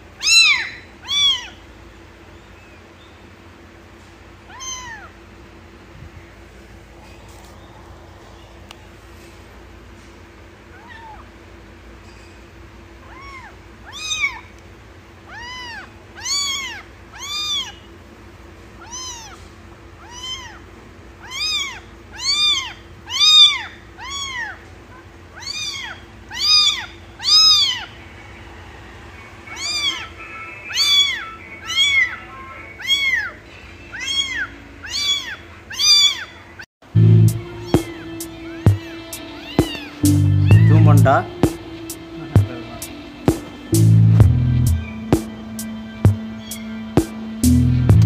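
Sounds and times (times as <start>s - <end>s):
kitten meowing: 0.2s - 1.6s, 4.5s - 5.1s, 13.0s - 14.5s, 15.3s - 17.8s, 18.8s - 19.4s, 20.0s - 20.6s, 21.2s - 24.6s, 25.3s - 27.9s, 29.5s - 30.1s, 30.7s - 32.2s, 32.8s - 36.3s, 37.7s - 40.8s.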